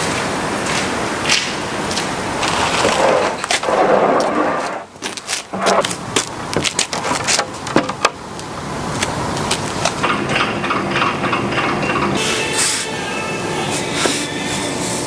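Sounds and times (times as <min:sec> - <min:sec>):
wooden boards knocking together: 0:06.6 - 0:08.2
woodworking machinery humming: 0:07.5 - 0:15.0.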